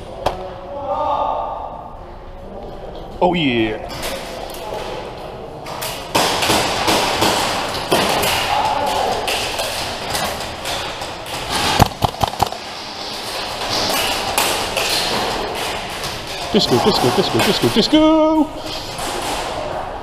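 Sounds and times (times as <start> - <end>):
airsoft gunfire: 11.4 - 12.7
sharp loud cracks: 11.4 - 12.8
voices: 15.2 - 20.0.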